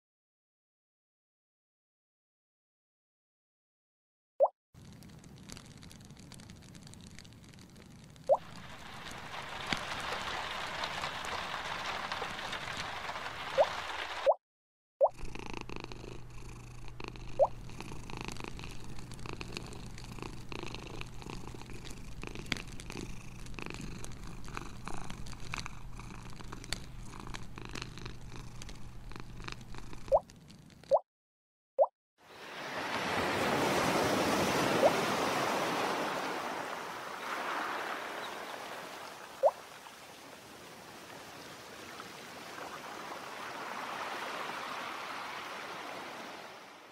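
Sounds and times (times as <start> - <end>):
cat purring: 4.8 - 13.8, 15.1 - 30.9
wood fire crackling: 4.8 - 14.3, 18.4 - 30.9
rushing water: 8.3 - 14.4, 32.3 - 46.9.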